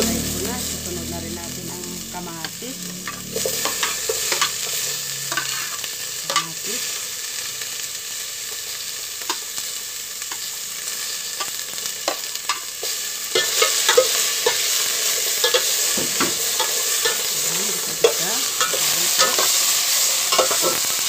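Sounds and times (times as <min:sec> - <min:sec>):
vegetables sizzling in oil: 0:00.0 - 0:21.0
tomatoes scraped and stirred: 0:11.4 - 0:20.9
utensils clicking on pot: 0:13.3 - 0:19.7, 0:20.3 - 0:20.9.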